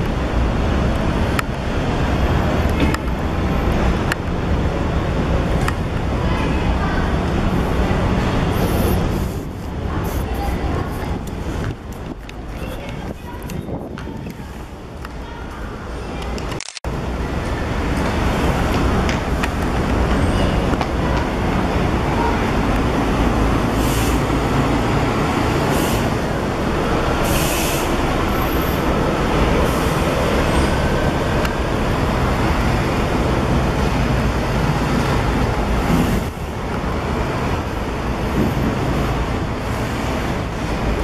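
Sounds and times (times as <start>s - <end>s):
bus engine pulling away: 0.0s - 13.1s, 16.9s - 41.0s
air brake hisses: 27.2s - 28.0s.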